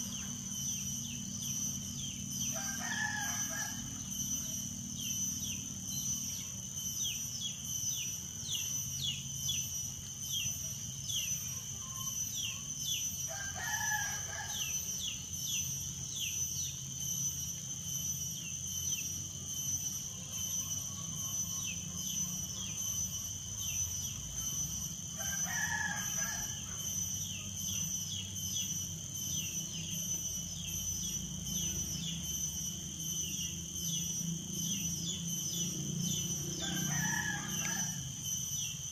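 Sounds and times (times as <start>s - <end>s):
high-pitched insect drone: 0.0s - 38.9s
rooster crowing: 2.5s - 4.2s, 13.3s - 14.8s, 25.2s - 26.9s, 36.0s - 38.2s.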